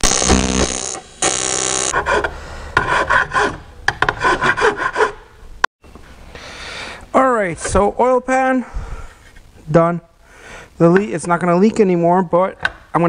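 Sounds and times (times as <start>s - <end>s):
welding arc buzzing: 0.0s - 2.0s.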